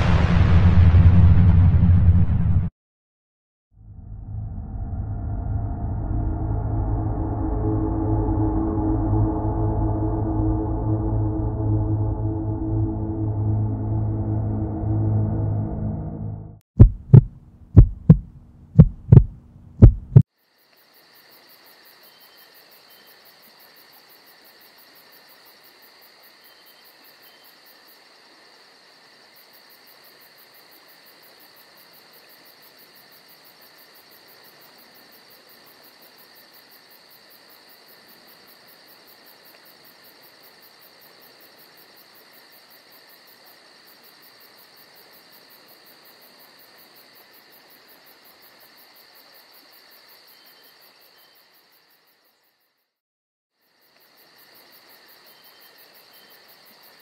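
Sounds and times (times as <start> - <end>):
low hum: 0.0 - 2.7, 3.8 - 20.2
deep heartbeat-like thumps: 16.8 - 20.2
crickets chirping: 20.3 - 53.0, 53.6 - 57.0.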